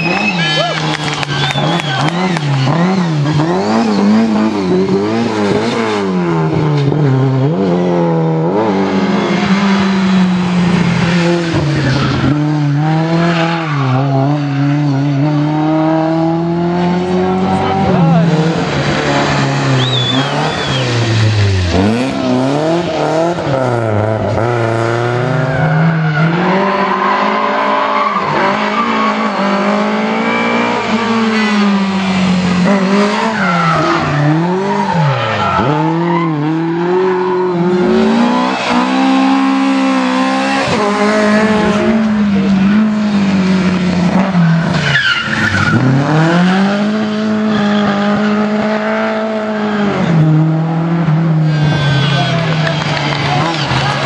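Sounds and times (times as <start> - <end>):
rally car engines revving: 0.0 - 54.0
tyre squeal: 19.4 - 22.3, 44.3 - 46.4, 51.5 - 53.6.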